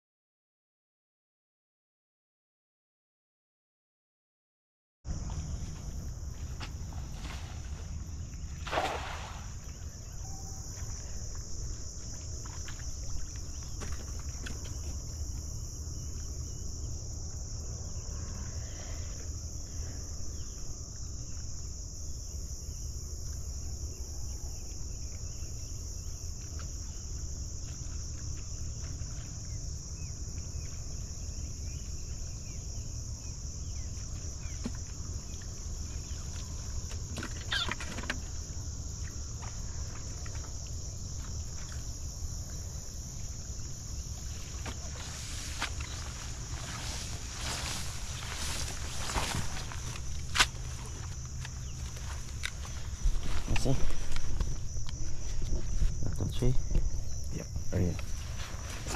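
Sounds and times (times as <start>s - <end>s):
insects chirping: 5.1s - 58.9s
cast net hitting water: 8.6s - 9.8s.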